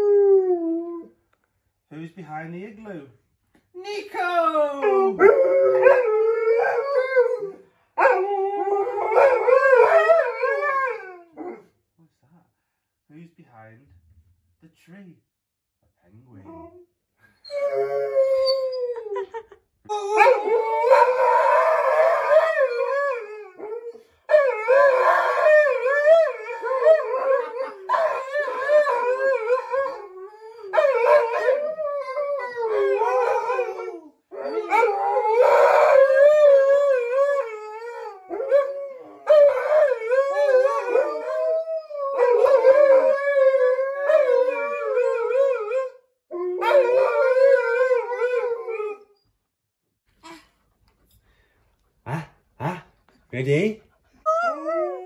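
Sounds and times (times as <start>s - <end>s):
dogs howling: 4.7s - 11.6s, 19.9s - 49.2s, 54.3s - 55.0s.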